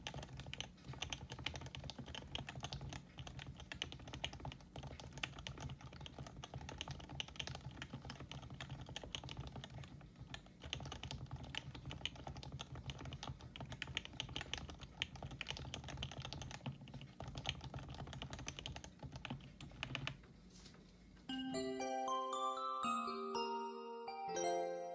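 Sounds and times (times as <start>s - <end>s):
fast keyboard typing: 0.0s - 20.2s.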